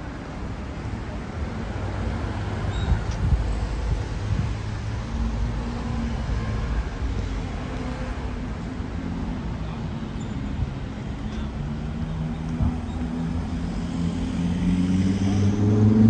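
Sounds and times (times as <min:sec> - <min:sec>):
cars driving past: 0:10.5 - 0:16.0.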